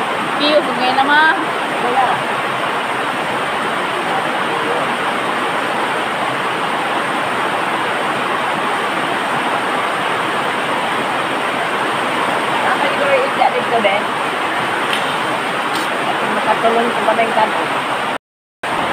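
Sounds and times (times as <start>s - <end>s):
loud steady rushing noise: 0.0s - 18.9s.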